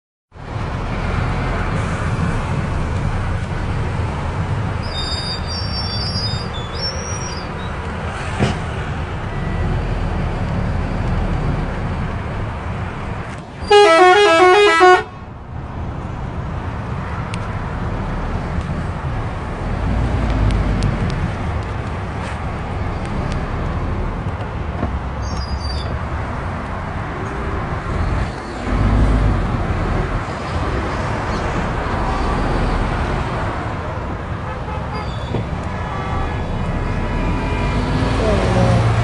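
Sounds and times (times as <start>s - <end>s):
truck engine and road rumble: 0.3s - 39.0s
loud horn: 13.6s - 15.2s, 35.8s - 39.0s.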